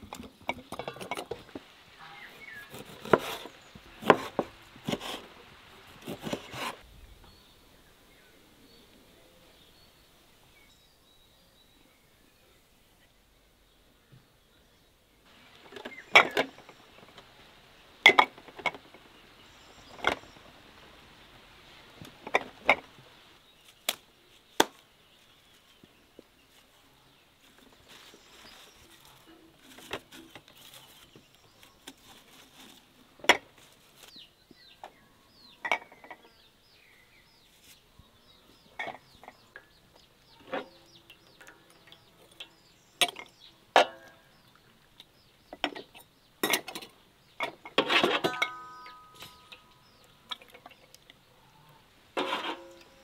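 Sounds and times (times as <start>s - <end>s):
glass jars clinking: 48.0s - 50.8s.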